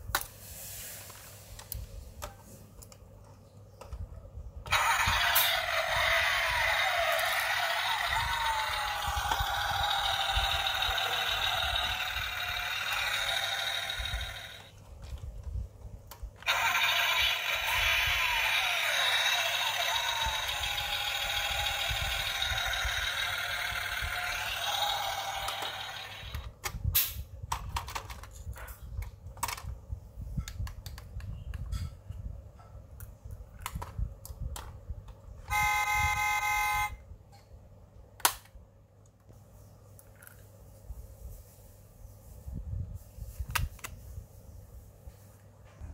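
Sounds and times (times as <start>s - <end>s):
recorded engine sound from speaker: 4.0s - 14.8s, 16.4s - 26.6s
toy model clicks and taps: 16.5s - 26.5s
toy horn beep: 35.5s - 37.0s.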